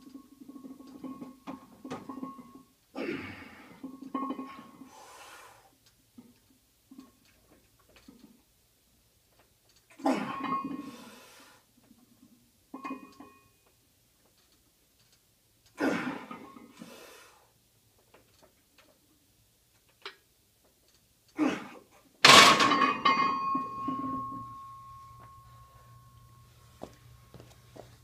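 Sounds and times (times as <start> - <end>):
barbell clanging on rack: 22.2 - 25.4.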